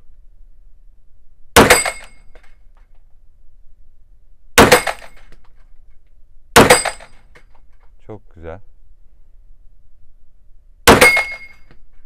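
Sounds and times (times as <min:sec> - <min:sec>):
metallic ring of steel targets: 0:01.6 - 0:02.5, 0:04.6 - 0:05.3, 0:06.6 - 0:07.4, 0:10.9 - 0:11.7.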